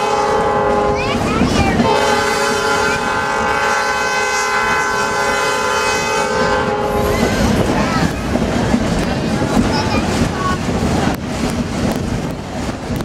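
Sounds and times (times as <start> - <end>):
train horn blast: 0.0 - 7.6
train rumbling: 0.0 - 13.0.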